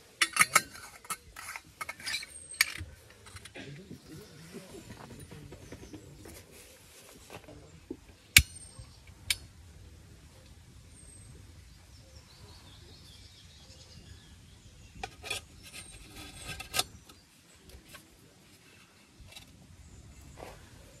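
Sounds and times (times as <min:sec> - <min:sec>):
metal cup clinking: 0:00.2 - 0:03.7.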